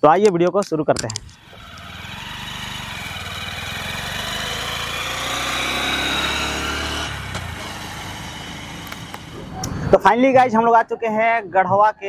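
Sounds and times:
motorcycle engine passing by: 0:01.4 - 0:09.5.

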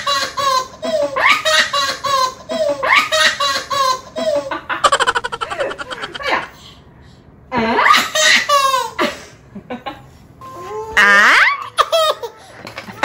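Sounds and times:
baby laughing: 0:04.8 - 0:06.4.

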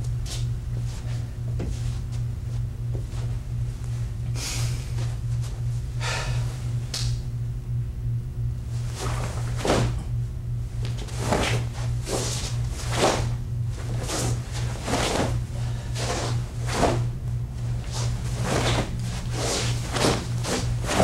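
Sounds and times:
steady low hum: 0:00.0 - 0:21.0
clothing swishing: 0:08.8 - 0:10.0, 0:10.8 - 0:21.0
bare feet shifting on carpet: 0:10.8 - 0:21.0.

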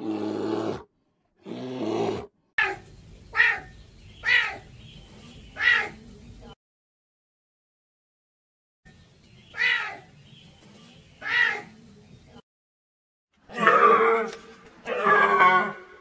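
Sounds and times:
serval meow-like calls: 0:13.5 - 0:15.9.

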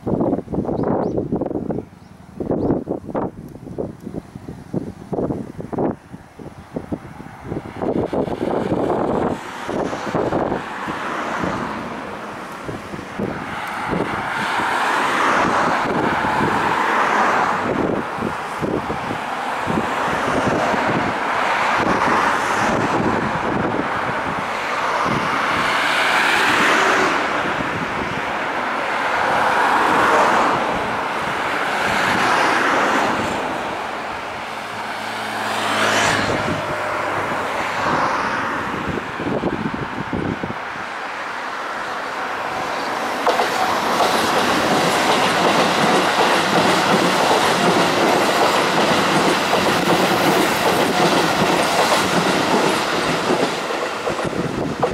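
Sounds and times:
electric train passing: 0:00.0 - 0:54.9
wheel clatter over rail joints: 0:42.6 - 0:54.9.

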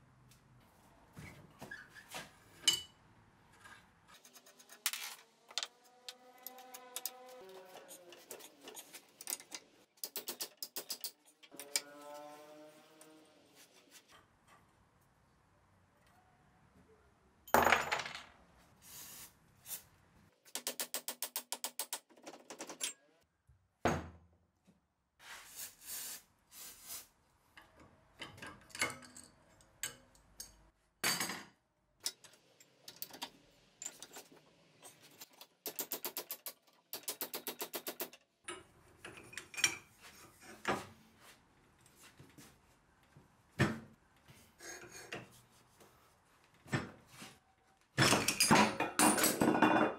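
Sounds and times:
metal tools clinking and knocking: 0:02.6 - 0:03.0, 0:27.6 - 0:33.2, 0:38.5 - 0:40.8, 0:48.0 - 0:49.9.

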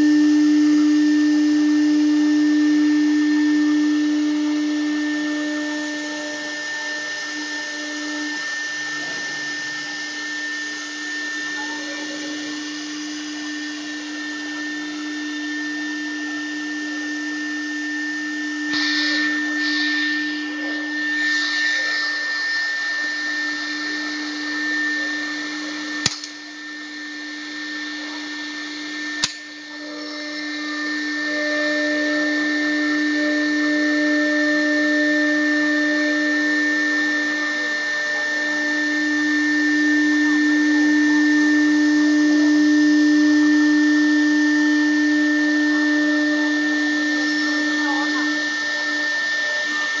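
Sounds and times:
router spindle whining: 0:00.0 - 0:50.0
hiss of cutting: 0:18.7 - 0:26.4
sharp clicks: 0:26.0 - 0:26.4.

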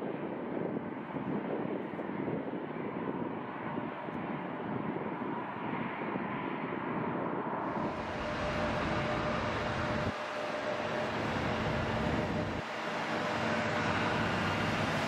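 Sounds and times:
jet engines roaring: 0:07.6 - 0:15.0
loader driving past rumbling: 0:07.6 - 0:15.0.

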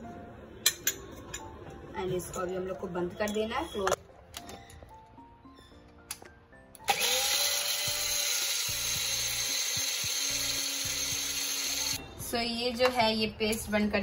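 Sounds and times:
soft background music: 0:00.0 - 0:14.0
mixer grinder whining: 0:06.8 - 0:12.0.

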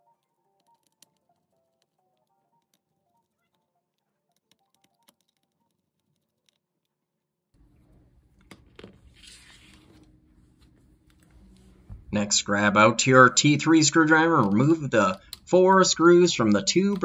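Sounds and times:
faint background music: 0:00.0 - 0:05.8.

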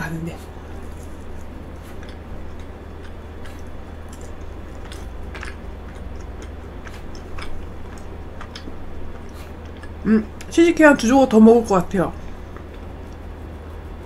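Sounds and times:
steady low hum: 0:00.0 - 0:14.0
chewing mouth clicks and smacks: 0:00.8 - 0:10.5.

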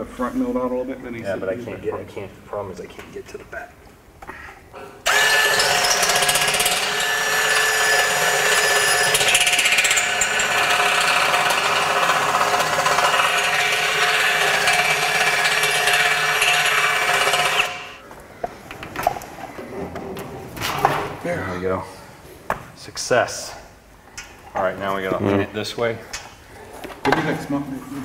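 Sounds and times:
power drill boring steel: 0:05.1 - 0:18.0.

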